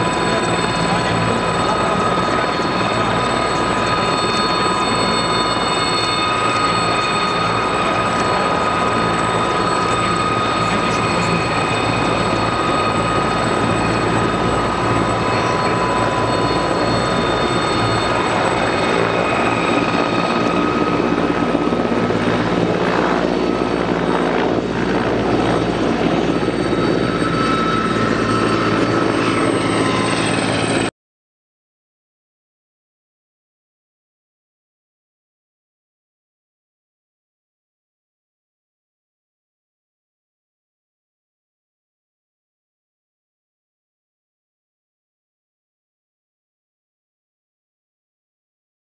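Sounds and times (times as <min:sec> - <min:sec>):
helicopter rotor beat: 0:00.0 - 0:30.9
helicopter turbine whine: 0:00.0 - 0:30.9.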